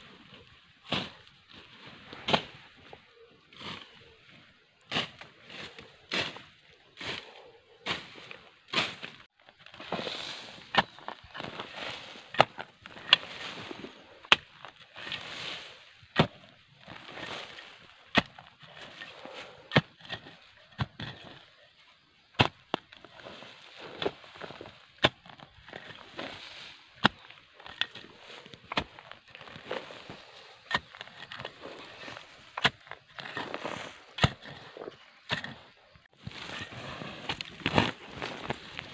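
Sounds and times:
leaves and stems rustling: 0:00.0 - 0:19.7, 0:22.7 - 0:38.9
metal blade chopping into earth: 0:34.2 - 0:34.6.

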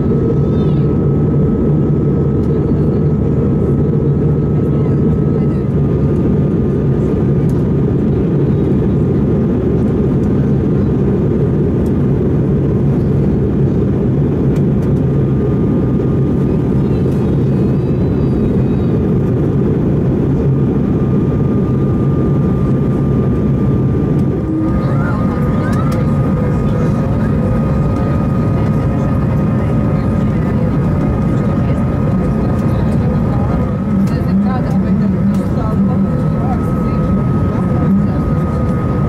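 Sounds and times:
airplane cabin engine rush: 0:00.0 - 0:39.0
faint steady whine: 0:13.4 - 0:39.0.

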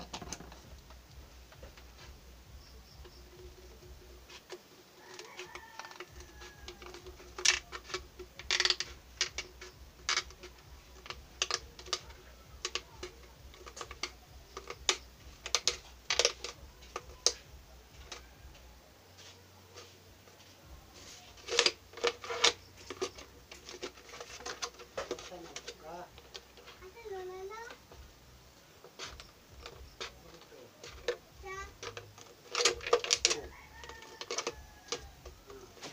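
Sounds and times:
plastic crackling: 0:00.0 - 0:18.8, 0:19.4 - 0:35.9
scissors snipping plastic bottle: 0:31.8 - 0:35.2.

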